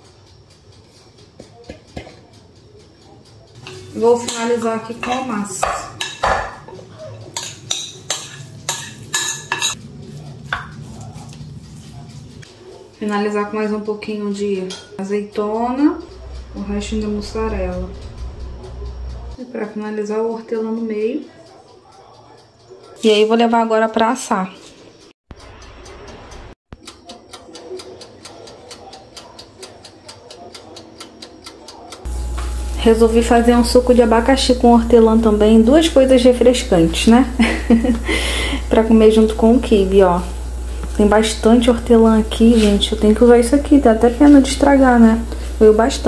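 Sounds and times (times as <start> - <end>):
gas oven spark igniter clicking: 3.5 - 6.7, 25.4 - 46.0
low steady hum: 16.1 - 19.4, 32.1 - 46.0
utensil scraping a baking dish: 37.9 - 46.0.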